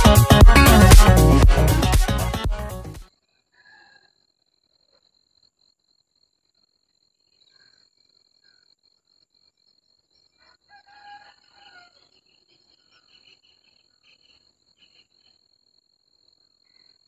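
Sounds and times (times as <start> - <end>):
crickets droning: 3.6 - 17.0
rooster crowing: 10.4 - 12.1.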